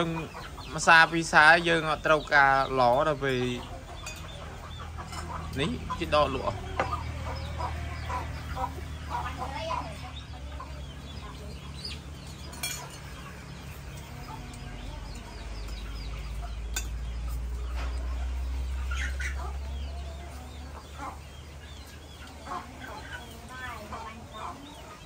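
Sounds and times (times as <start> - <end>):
chickens clucking: 0.0 - 25.0
small birds chirping: 0.0 - 25.0
spoons clinking on plates: 4.0 - 4.4, 12.3 - 13.1, 16.7 - 17.0.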